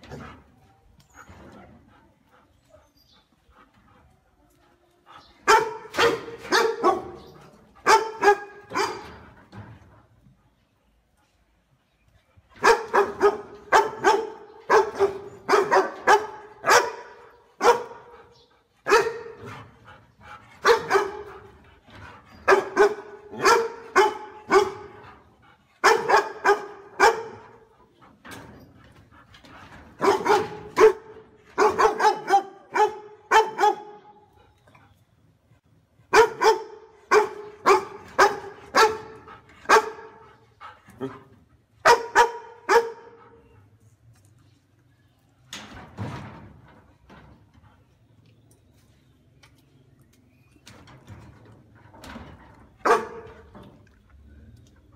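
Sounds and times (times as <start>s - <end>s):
dog barking loudly: 5.5s - 9.1s, 12.6s - 18.1s, 18.8s - 19.4s, 20.6s - 21.3s, 22.5s - 25.0s, 25.8s - 27.5s, 30.0s - 34.0s, 36.1s - 40.2s, 41.8s - 43.1s, 52.8s - 53.2s.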